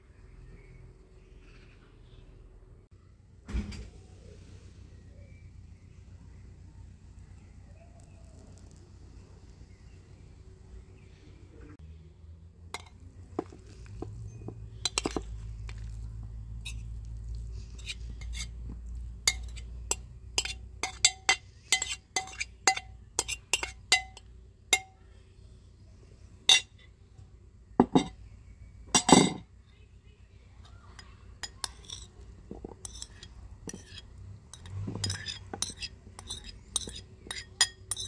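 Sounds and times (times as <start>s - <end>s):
utensil clinking against a dish: 12.8s - 25.0s, 27.8s - 28.2s, 28.9s - 29.5s, 30.9s - 38.0s.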